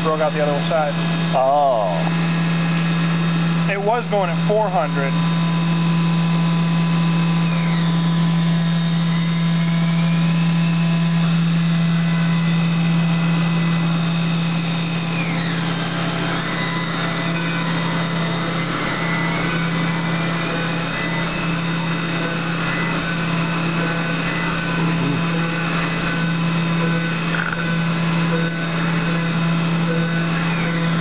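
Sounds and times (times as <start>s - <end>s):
milling machine humming: 0.0s - 31.0s
cutting tool whistling: 4.8s - 31.0s.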